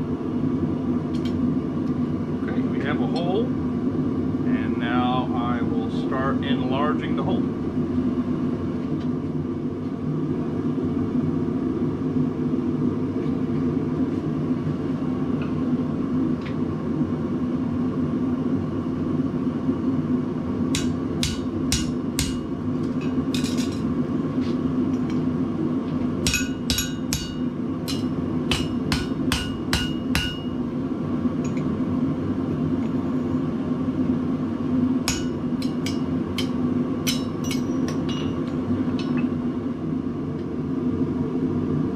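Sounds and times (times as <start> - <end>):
hammer striking metal on anvil: 20.7 - 22.5, 26.2 - 30.6, 35.0 - 39.3.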